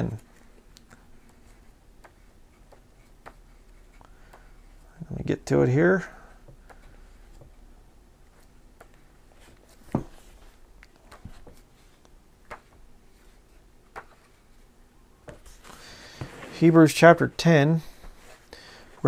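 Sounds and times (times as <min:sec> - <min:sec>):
book pages rustling: 0:08.3 - 0:16.8.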